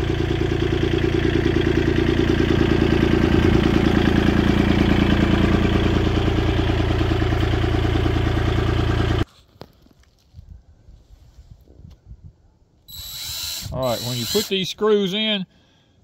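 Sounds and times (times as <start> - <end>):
engine idling: 0.0 - 9.3.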